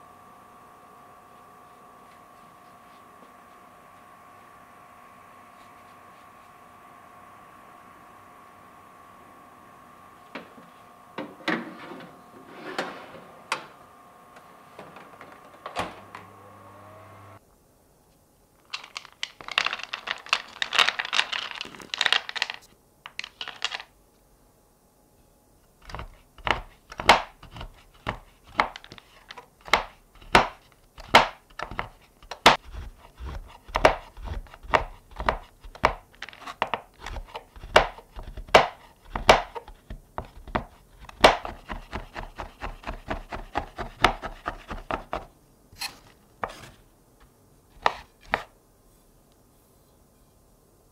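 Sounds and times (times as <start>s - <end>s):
oven hum: 0.0s - 17.5s
baking tray sliding into oven: 10.4s - 13.9s
knife chopping on cutting board: 29.7s - 36.0s, 36.6s - 45.3s.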